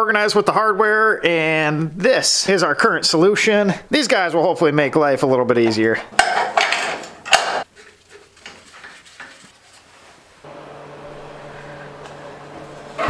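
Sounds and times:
metal bracket clattering and scraping: 6.1 - 9.4.

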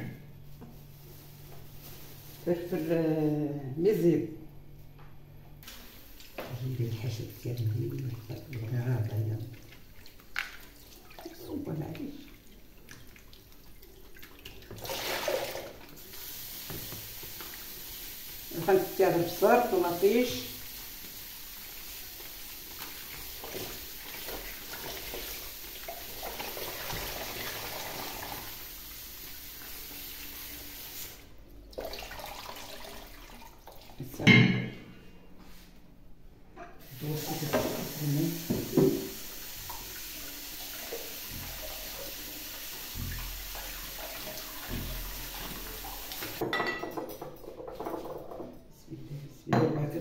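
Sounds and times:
tap running into sink: 16.6 - 17.6, 37.2 - 40.0, 40.7 - 46.6
dishes clattering: 34.2 - 34.8, 46.4 - 48.6.

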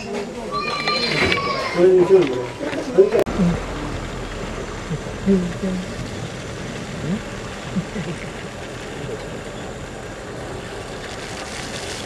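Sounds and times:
jeep engine at low speed: 2.3 - 12.0
steady noise: 2.4 - 12.0.

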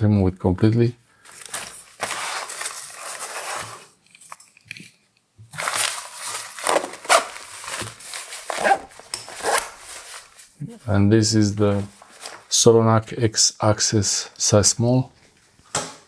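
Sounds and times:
nylon fabric rustling: 1.3 - 3.9, 5.5 - 10.9, 11.6 - 12.5.

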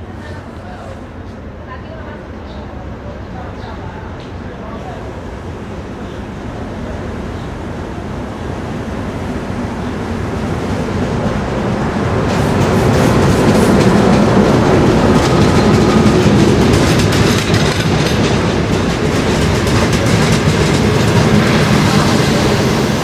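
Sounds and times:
diesel locomotive passing: 0.0 - 23.0
train wheels clacking over rails: 10.3 - 23.0.

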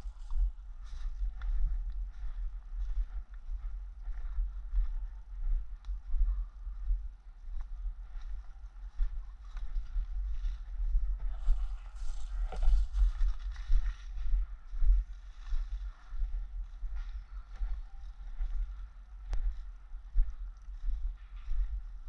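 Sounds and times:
low microphone rumble: 0.0 - 22.0
footsteps on wood chips: 11.3 - 14.0.

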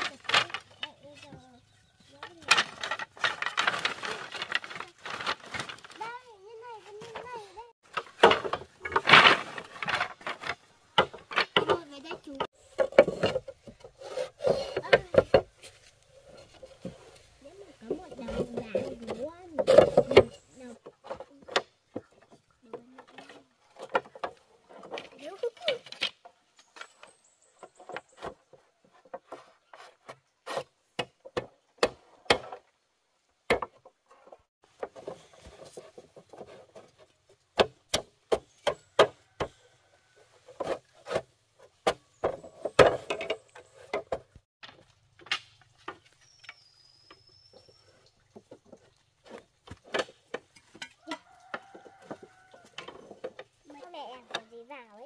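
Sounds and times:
bamboo rubbing and scraping: 0.0 - 32.8, 33.6 - 55.0
bamboo knocking: 7.8 - 13.9, 33.5 - 33.9, 34.6 - 39.6.

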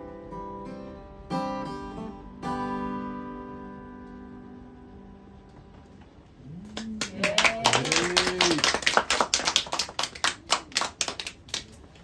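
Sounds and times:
small audience clapping: 6.4 - 12.0.

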